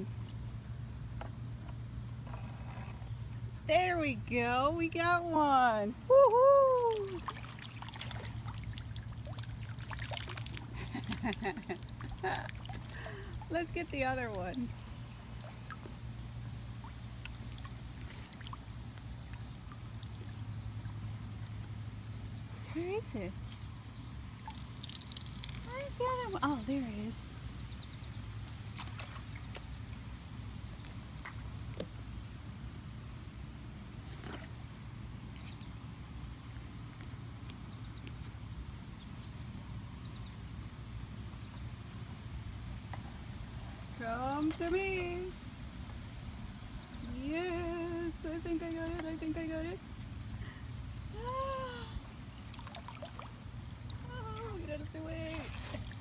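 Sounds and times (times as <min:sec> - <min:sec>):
steady low hum: 0:00.0 - 0:56.0
net drawn through water: 0:55.2 - 0:56.0.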